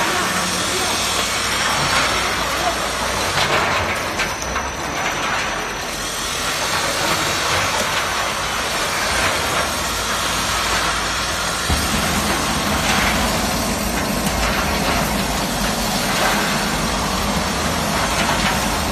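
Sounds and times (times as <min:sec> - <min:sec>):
machine mechanical noise: 0:00.0 - 0:18.9
deep low rumble: 0:11.7 - 0:18.4.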